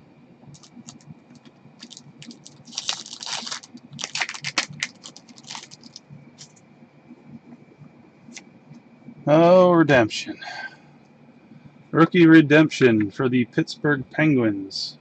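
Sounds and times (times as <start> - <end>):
cards rustling: 0.6 - 6.5.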